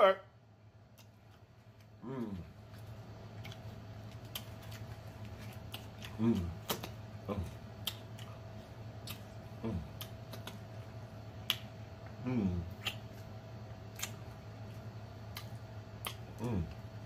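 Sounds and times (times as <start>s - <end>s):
man chewing with mouth smacks: 0.8s - 16.8s
man humming mm: 2.0s - 2.6s, 6.0s - 7.6s, 9.6s - 10.1s, 12.2s - 13.0s, 16.2s - 16.8s
finger-licking smacks: 10.0s - 10.6s.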